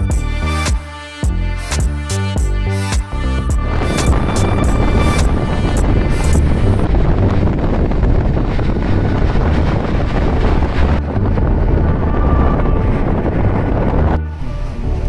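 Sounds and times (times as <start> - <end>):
wind buffeting microphone: 3.4 - 15.0.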